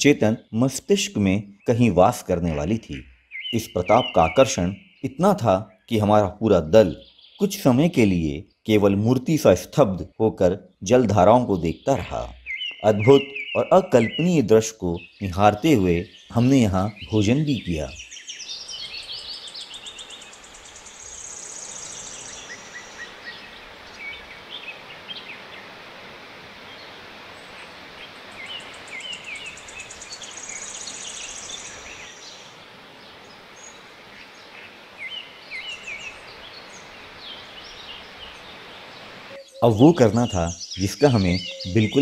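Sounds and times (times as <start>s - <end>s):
birds chirping and calling: 0.0s - 25.7s, 26.7s - 42.0s
steady rushing hiss: 18.2s - 41.0s.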